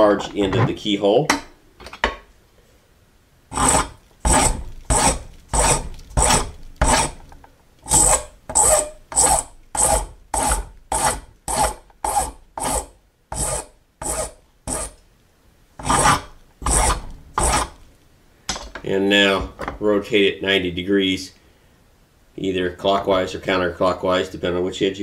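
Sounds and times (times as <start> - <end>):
file rasping on brass: 3.5 - 7.2, 7.9 - 15.0, 15.8 - 17.8.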